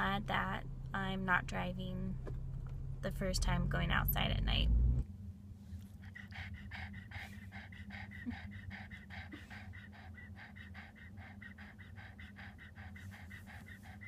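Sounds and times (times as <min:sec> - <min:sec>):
dog panting rapidly: 0:05.8 - 0:14.0.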